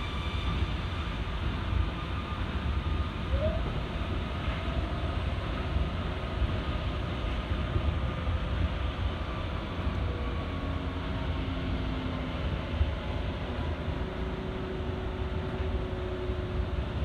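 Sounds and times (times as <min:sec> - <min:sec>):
train rumbling on track: 0:00.0 - 0:17.0.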